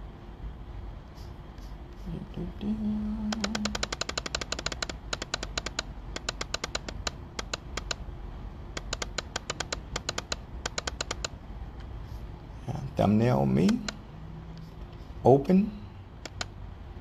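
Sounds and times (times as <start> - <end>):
computer mouse clicks: 3.2 - 8.0, 8.7 - 11.9, 13.6 - 14.0, 16.2 - 16.6.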